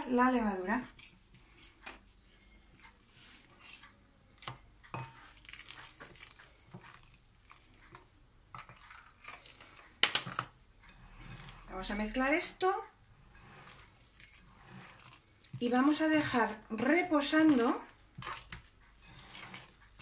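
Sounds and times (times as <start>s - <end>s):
fork scraping glass bowl: 3.2s - 3.9s, 4.9s - 9.9s, 10.9s - 20.0s.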